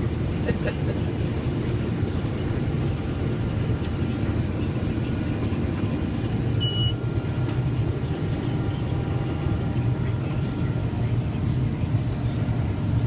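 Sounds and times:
combine harvester rumbling: 0.0s - 13.0s
short high-pitched beep: 6.6s - 7.0s.

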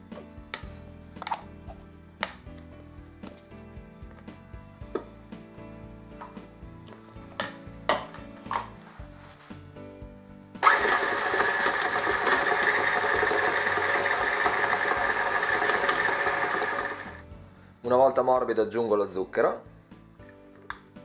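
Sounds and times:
stand mixer running: 10.6s - 17.2s.

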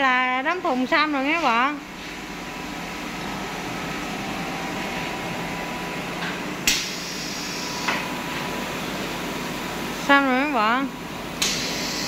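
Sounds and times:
machinery hum and hiss: 0.3s - 12.0s.

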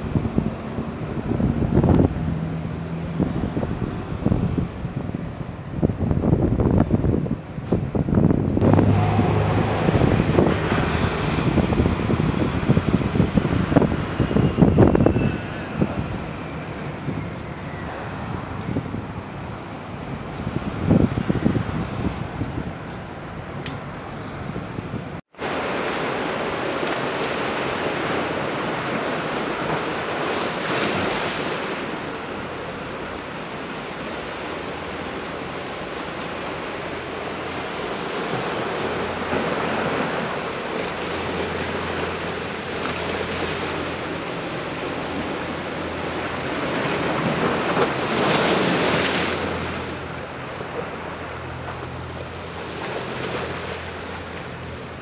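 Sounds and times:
wind on microphone: 0.0s - 25.7s
waves washing on shore: 0.0s - 55.0s
low steady drone: 8.6s - 12.0s.

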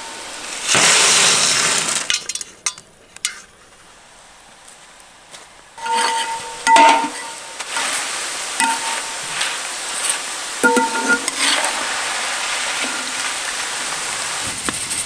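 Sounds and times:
food deep-frying in oil: 0.0s - 2.4s, 5.8s - 15.0s
ladle clanging against metal pan: 5.8s - 7.4s, 8.6s - 9.4s, 10.6s - 11.8s.

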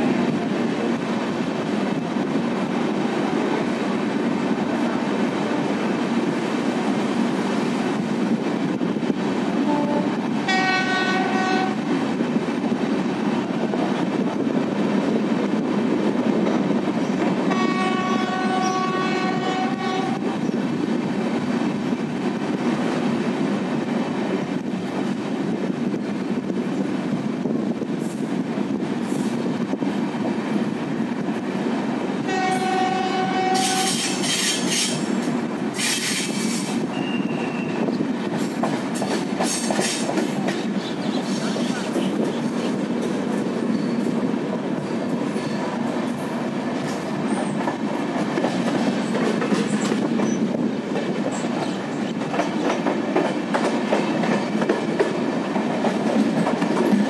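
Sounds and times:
train coaches rumbling and clattering: 0.0s - 57.0s
locomotive horn blasts: 9.6s - 11.8s, 17.5s - 20.3s, 32.3s - 34.2s.

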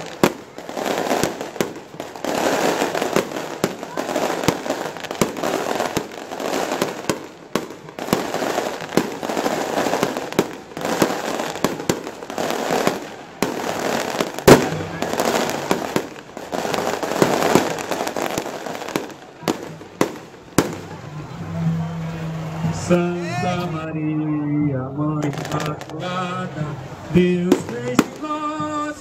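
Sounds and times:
fireworks cracking bangs: 0.0s - 23.8s, 25.2s - 29.0s.

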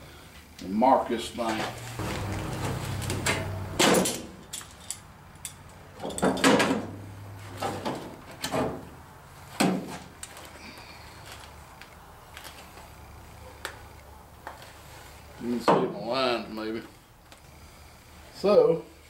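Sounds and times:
sheet metal scraping and clunking: 1.6s - 8.9s.

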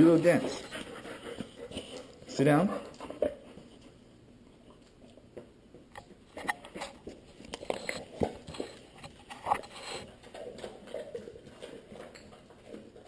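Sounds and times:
dog crunching a treat: 4.6s - 13.0s.

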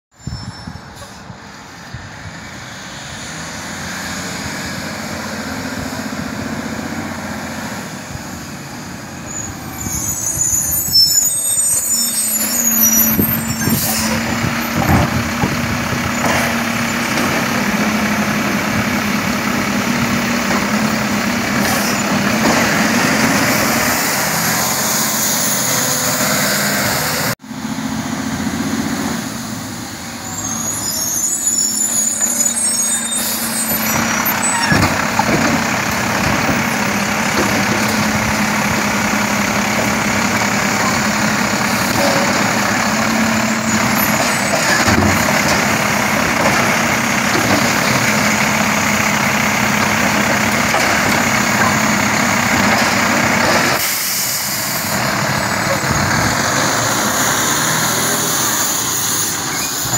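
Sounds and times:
air brakes hissing: 0.2s - 1.4s, 53.8s - 55.1s
diesel truck engine: 0.2s - 59.9s.

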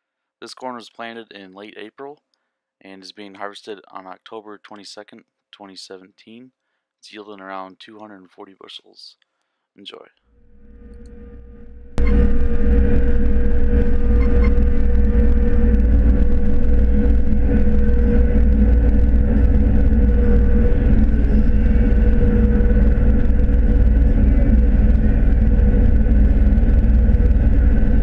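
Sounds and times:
constant hum: 10.4s - 28.0s
diesel engine and machinery rumbling: 11.9s - 28.0s.

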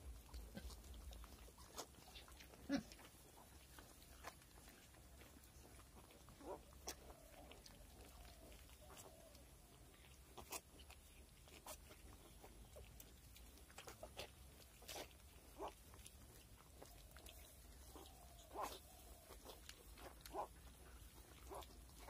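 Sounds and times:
piglets squeaking: 13.8s - 22.0s.

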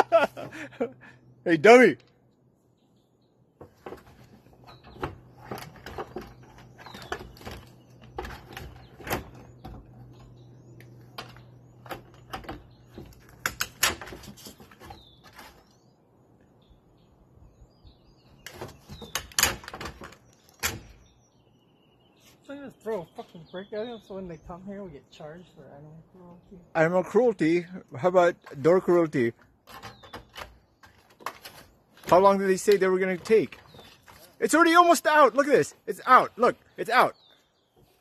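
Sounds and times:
birds chirping faintly: 0.0s - 38.0s
bear clawing at wooden door: 3.6s - 10.3s, 11.2s - 15.7s.

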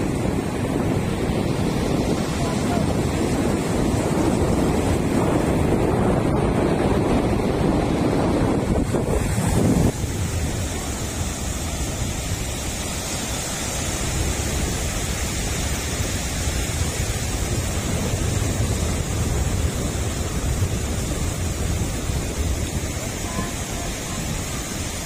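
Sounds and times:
surf breaking: 0.0s - 25.0s
wind buffeting microphone: 0.0s - 25.0s.

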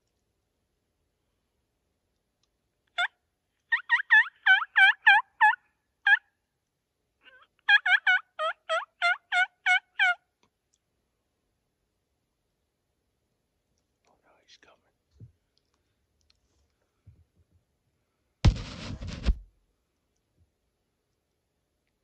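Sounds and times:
turkey yelps on a mouth call: 3.0s - 6.3s, 7.2s - 10.2s.

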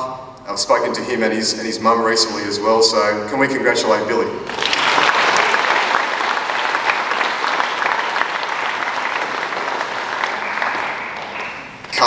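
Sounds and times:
crowd applauding: 4.5s - 12.0s.

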